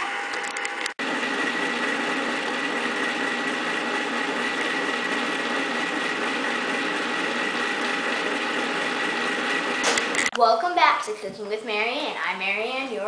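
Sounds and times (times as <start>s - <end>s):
ice cream maker motor humming: 0.0s - 10.4s.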